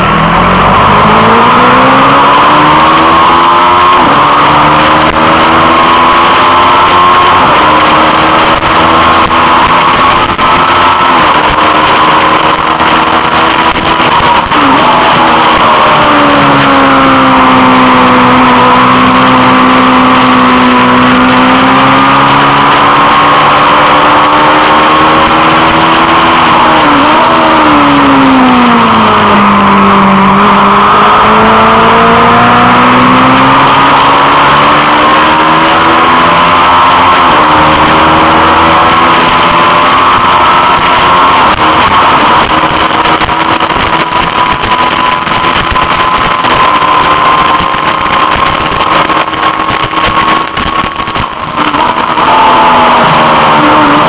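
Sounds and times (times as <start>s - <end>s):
motorcycle engine at racing revs: 0.0s - 54.0s.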